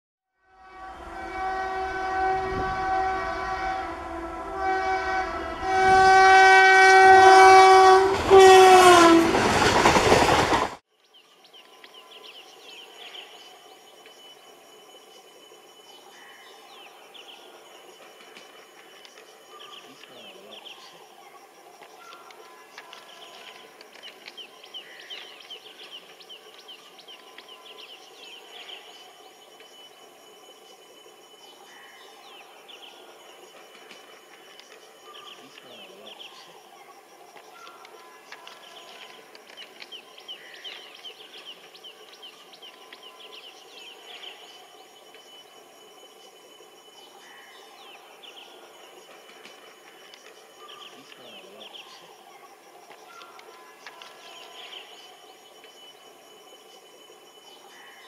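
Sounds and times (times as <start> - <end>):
locomotive air horn blasts: 0.4 - 9.6
outdoor background noise: 0.4 - 58.0
train passing rushing noise: 0.6 - 10.8
faint bird chirps: 11.1 - 58.0
thin steady high tone: 11.4 - 58.0.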